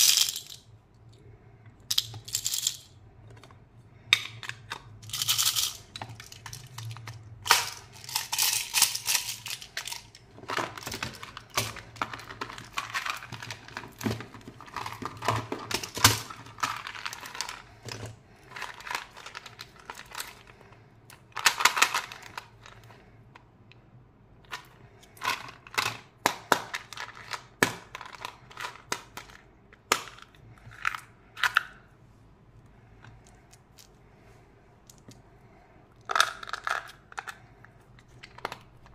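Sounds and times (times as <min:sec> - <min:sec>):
hard candies rattling: 0:00.0 - 0:00.7, 0:01.9 - 0:03.0, 0:04.2 - 0:22.9, 0:36.0 - 0:37.4
plastic toys clicking and tapping: 0:01.9 - 0:03.5, 0:04.1 - 0:20.5, 0:21.1 - 0:22.9, 0:24.5 - 0:31.8, 0:38.0 - 0:38.9.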